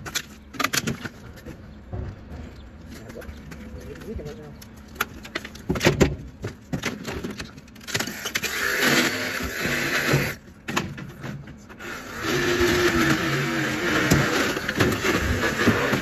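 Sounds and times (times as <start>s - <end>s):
knocks and clatters of wood: 0.0s - 8.2s
reciprocating saw cutting wood: 8.1s - 10.4s, 11.8s - 16.0s.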